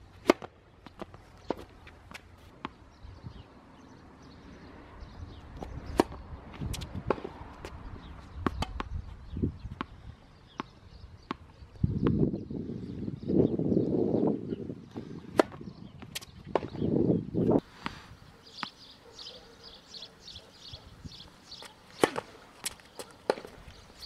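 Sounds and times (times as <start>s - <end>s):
tennis ball bouncing on court: 0.2s - 2.8s, 5.6s - 7.4s, 8.4s - 9.0s, 10.5s - 12.2s, 21.9s - 23.7s
ball popping off racket: 21.9s - 23.7s.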